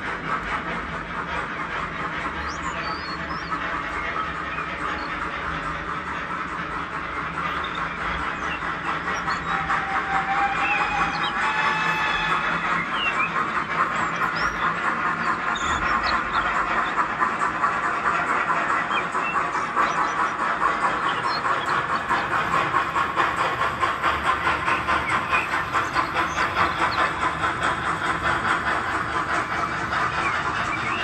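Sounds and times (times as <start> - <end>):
model steam locomotive chuffing: 0.0 - 31.0
bird chirps: 7.5 - 17.0.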